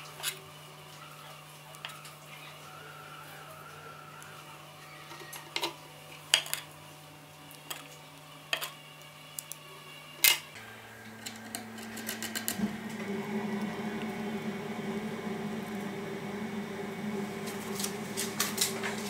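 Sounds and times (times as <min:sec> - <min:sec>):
steady low hum: 0:05.8 - 0:19.0.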